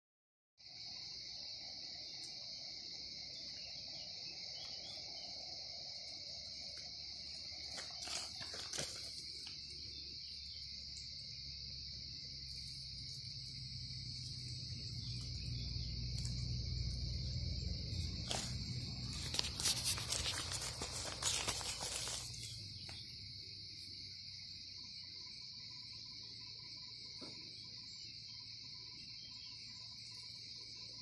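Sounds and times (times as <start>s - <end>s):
insects trilling: 0.6s - 31.0s
low rumble: 14.4s - 19.6s.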